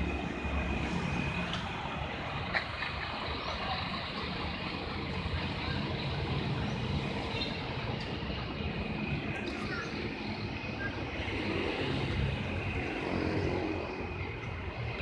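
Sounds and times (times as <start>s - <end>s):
diesel engine idling: 0.0s - 11.1s.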